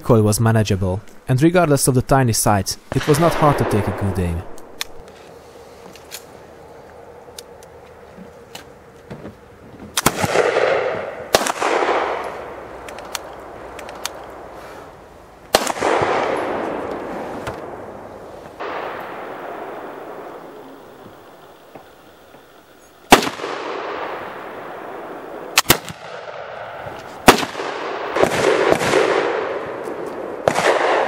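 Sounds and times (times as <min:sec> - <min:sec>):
rifle shots with long echo: 0:02.9 - 0:05.1, 0:10.0 - 0:13.6, 0:15.5 - 0:31.0.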